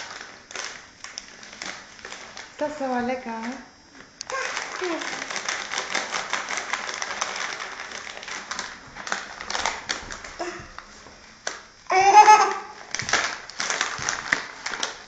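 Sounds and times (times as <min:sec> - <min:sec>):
child squealing: 0:11.9 - 0:12.8.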